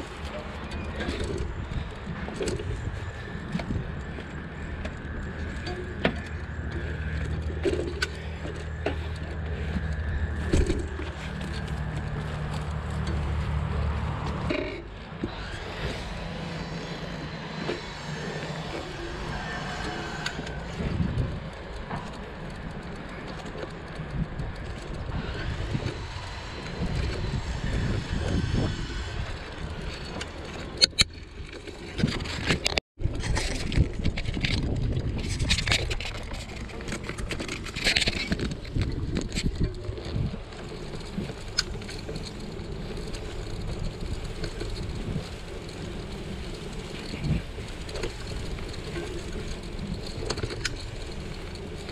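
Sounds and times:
low microphone rumble: 0:00.0 - 0:30.8
bicycle tyres rolling: 0:00.0 - 0:51.9
bike clicks and rattles: 0:00.0 - 0:51.9.

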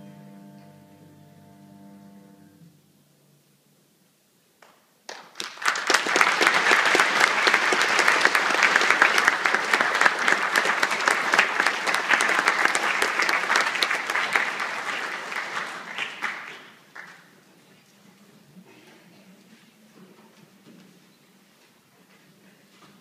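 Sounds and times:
audience applause: 0:05.1 - 0:17.3.

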